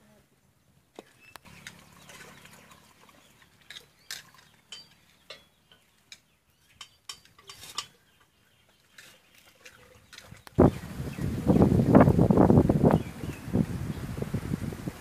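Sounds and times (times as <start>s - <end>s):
firewood and metal pots clicking: 1.0s - 10.6s.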